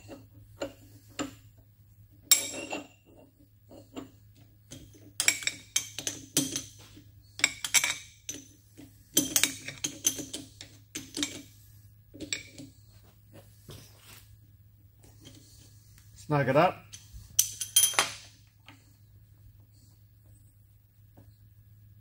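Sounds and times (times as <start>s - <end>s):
faint low hum: 0.0s - 22.0s
metallic clinks and knocks: 2.2s - 11.5s, 16.9s - 18.5s.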